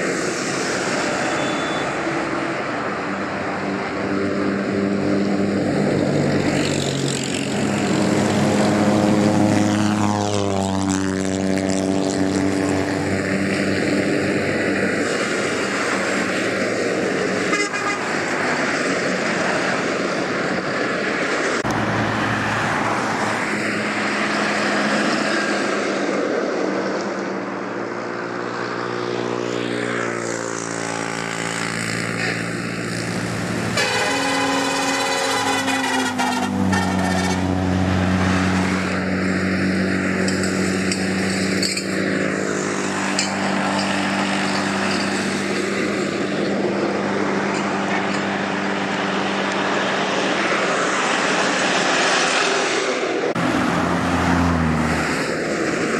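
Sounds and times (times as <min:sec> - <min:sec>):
diesel vehicles driving past: 0:00.0 - 0:55.9
vehicle horns: 0:01.2 - 0:02.3, 0:17.4 - 0:18.3, 0:33.7 - 0:37.7.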